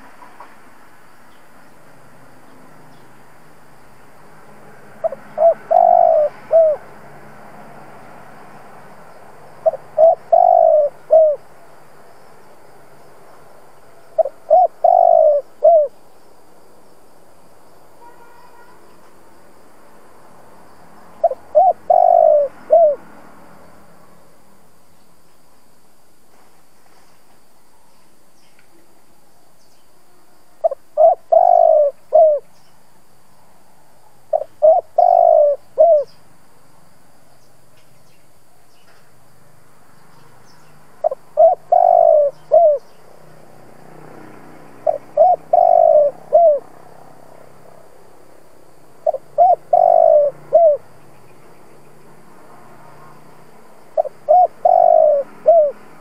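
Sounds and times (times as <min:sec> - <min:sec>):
dove cooing: 0:05.0 - 0:06.8, 0:09.6 - 0:11.5, 0:14.2 - 0:16.0, 0:21.2 - 0:23.0, 0:30.6 - 0:32.5, 0:34.3 - 0:36.1, 0:41.0 - 0:42.9, 0:44.8 - 0:46.7, 0:49.0 - 0:50.8, 0:54.0 - 0:55.9.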